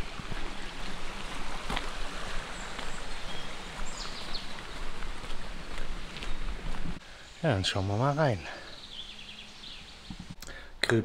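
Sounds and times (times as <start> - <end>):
rain falling in woodland: 0.0 - 10.7
small bird chirping: 7.2 - 10.4.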